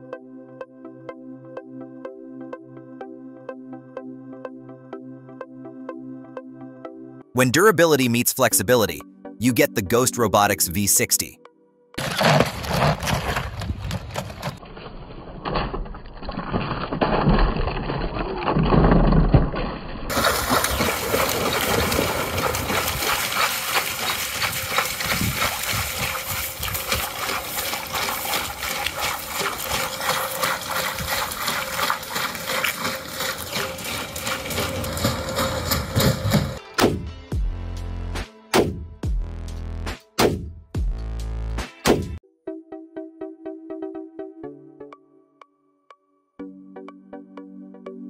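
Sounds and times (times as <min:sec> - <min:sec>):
robot feet splashing in water: 0:15.6 - 0:36.6.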